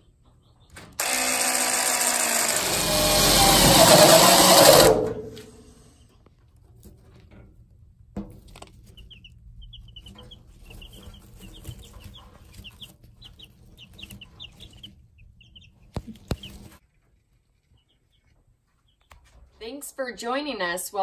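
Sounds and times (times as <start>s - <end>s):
chicks peeping: 0.0s - 1.0s, 8.3s - 19.4s.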